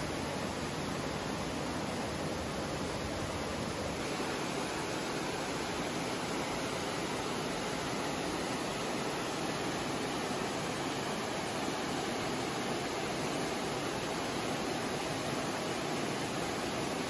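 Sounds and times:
waterfall crashing into pool: 3.6s - 17.0s.

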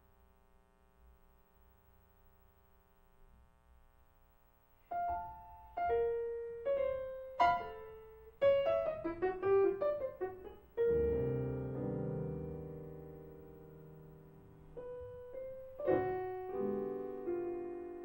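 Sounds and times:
solo grand piano: 4.9s - 18.0s.

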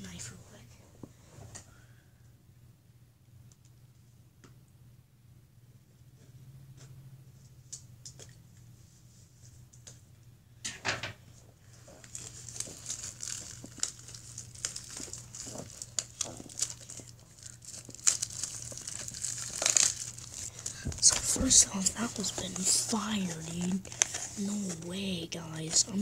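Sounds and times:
plastic wrapper crinkling and tearing: 11.7s - 26.0s.

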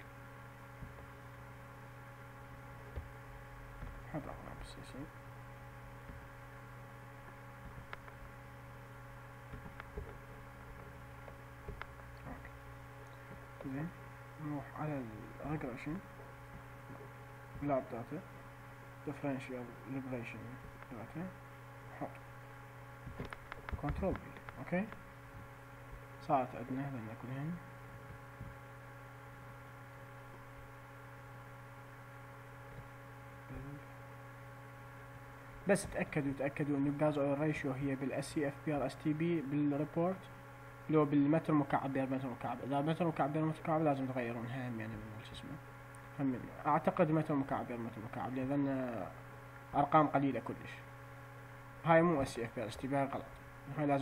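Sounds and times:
low electrical hum: 0.0s - 54.0s
computer mouse clicks: 23.1s - 25.0s.

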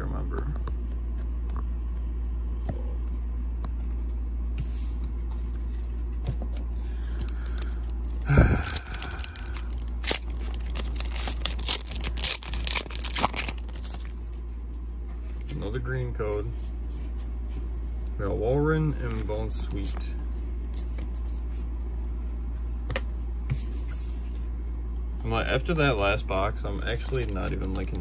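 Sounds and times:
steady low hum: 0.0s - 28.0s
foil crinkling: 6.9s - 14.2s, 26.8s - 28.0s
foil wrapper tearing: 8.4s - 14.1s, 26.9s - 28.0s.

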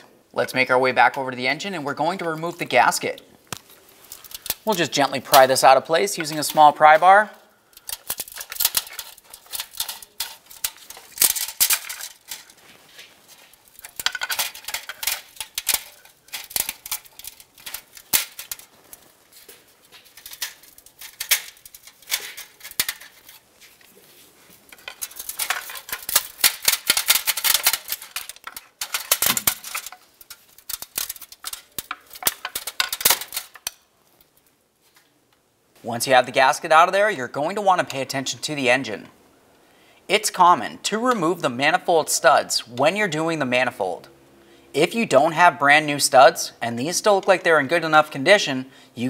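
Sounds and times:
metal scraping and rattling: 3.8s - 23.9s, 24.6s - 33.8s.

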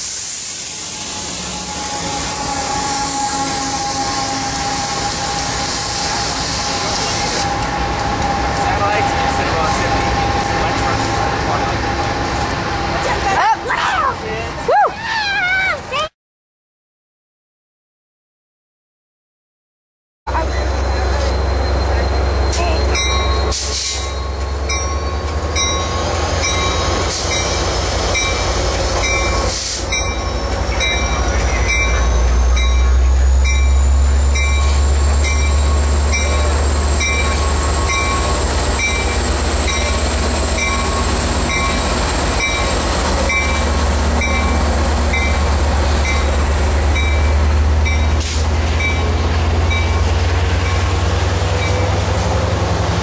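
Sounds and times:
diesel locomotive rumble: 0.0s - 14.7s, 20.3s - 53.0s
train bell ringing: 20.3s - 52.0s.

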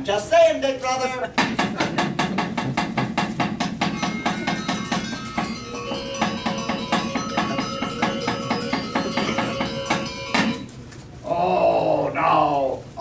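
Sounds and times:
gamelan metallophones ringing: 3.8s - 10.7s.

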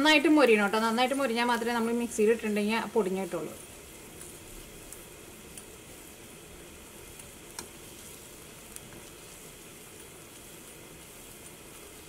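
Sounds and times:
frying in hot oil sizzling: 0.0s - 12.0s.

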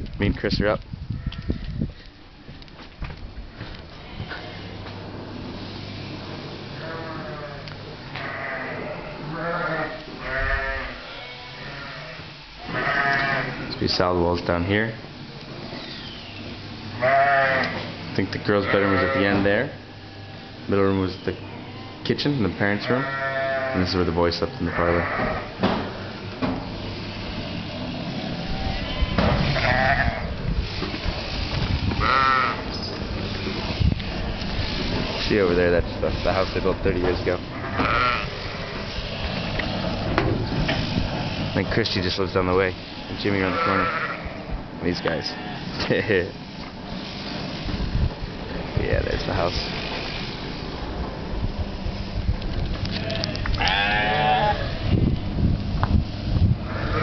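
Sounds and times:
sheep bleating: 3.9s - 4.8s, 6.8s - 13.8s, 16.9s - 17.9s, 18.5s - 20.7s, 21.4s - 25.5s, 28.3s - 30.3s, 32.0s - 32.7s, 37.5s - 38.9s, 42.9s - 45.8s, 52.9s - 54.8s.

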